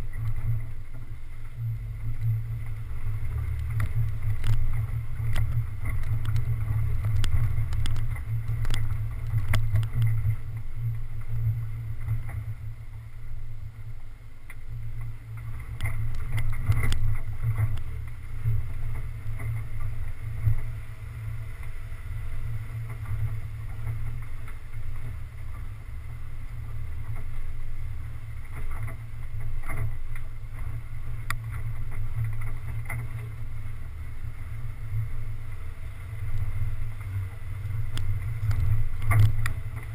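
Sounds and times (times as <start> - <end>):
off-road vehicle rumbling on dirt: 0.0 - 39.9.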